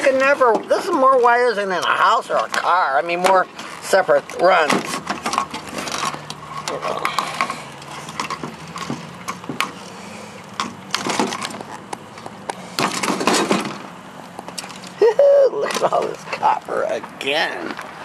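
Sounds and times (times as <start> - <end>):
wires rustling: 0.0 - 18.0.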